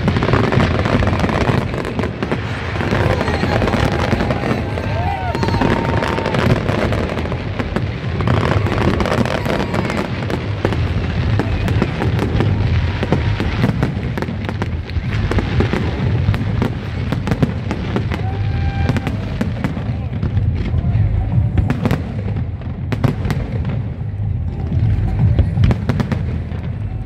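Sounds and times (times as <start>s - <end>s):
fireworks bangs and crackles: 0.0s - 27.0s
low rumble: 0.0s - 27.0s.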